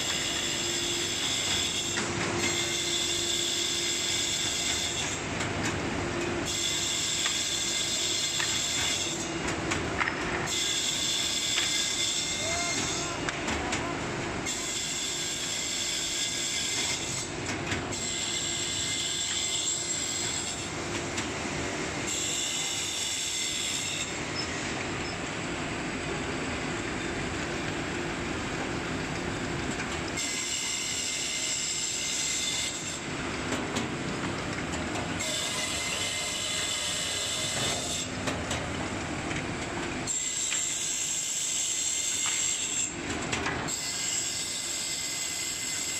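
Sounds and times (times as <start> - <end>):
saw machine running: 10.5 - 45.9.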